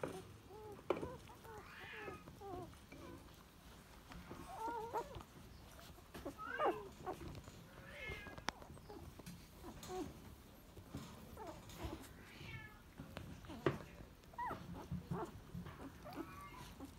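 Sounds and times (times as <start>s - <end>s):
puppies squeaking: 0.0s - 12.4s, 13.4s - 16.9s.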